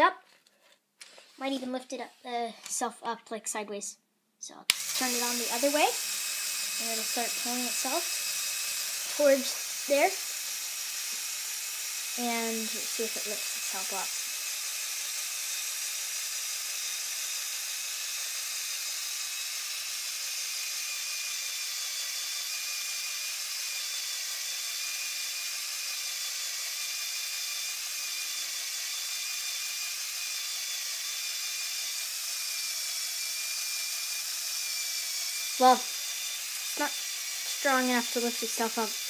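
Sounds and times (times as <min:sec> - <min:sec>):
toy motor winch whining: 0:04.7 - 0:39.0.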